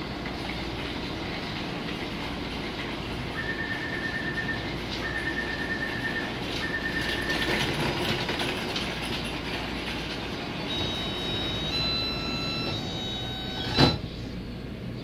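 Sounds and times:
train hum: 0.0s - 15.0s
door-closing warning beeps: 3.4s - 7.9s, 10.6s - 14.5s.

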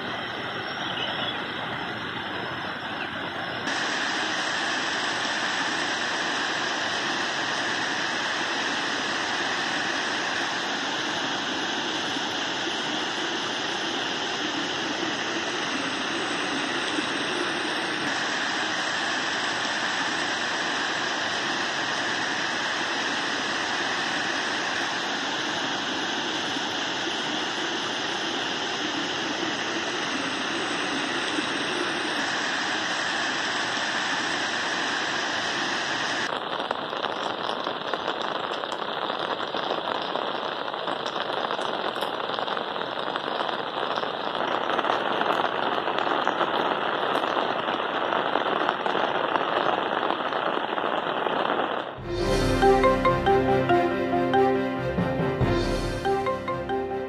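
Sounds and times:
heavy rain and rushing runoff water: 1.4s - 36.3s
music jingle: 52.0s - 57.0s.

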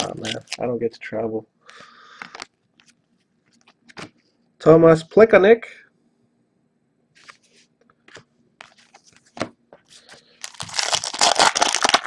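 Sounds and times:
foil wrapper tearing and crinkling: 0.0s - 0.7s, 10.4s - 12.0s.

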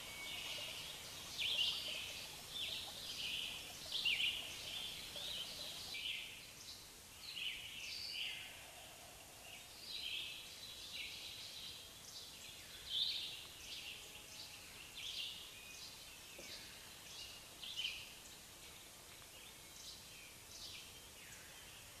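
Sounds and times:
faint outdoor hiss: 0.0s - 22.0s.

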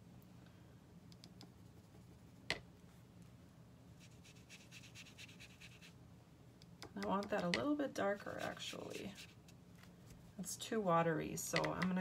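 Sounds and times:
brush scratching on paper: 4.0s - 6.0s, 8.2s - 9.5s.

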